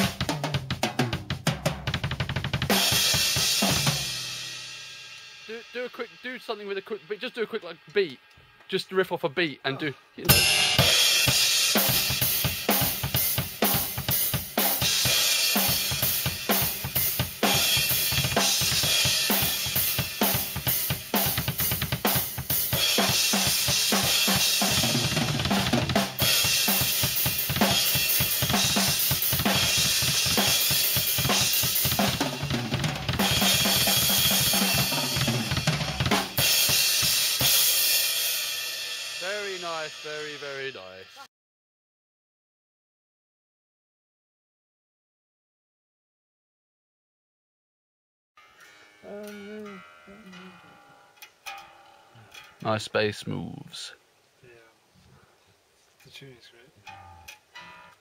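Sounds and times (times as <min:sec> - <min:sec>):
rock drum beat: 0:00.0 - 0:08.0, 0:10.3 - 0:41.3.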